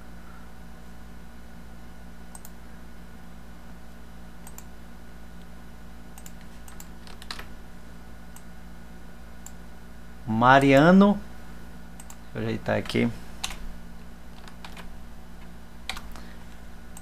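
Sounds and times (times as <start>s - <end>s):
low electrical hum: 0.0s - 17.0s
computer mouse clicks: 2.3s - 2.6s, 4.4s - 4.7s, 6.2s - 7.5s, 12.0s - 12.2s, 14.4s - 14.9s, 15.9s - 16.3s.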